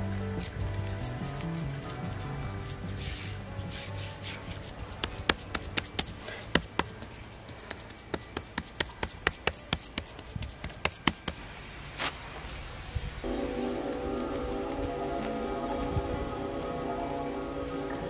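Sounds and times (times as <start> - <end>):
rubbing mud smooth: 0.0 - 11.4
hands patting wet mud: 2.8 - 11.4.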